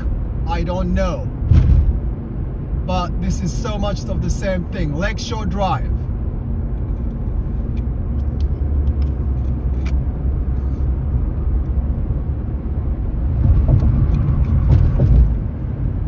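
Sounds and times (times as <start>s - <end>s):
car interior road rumble: 0.0s - 16.0s
tyre and wind noise: 13.2s - 16.0s.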